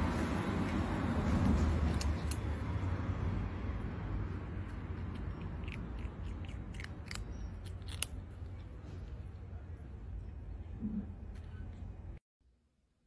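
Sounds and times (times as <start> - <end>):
kitten crunching dry kibble: 4.4 - 9.6.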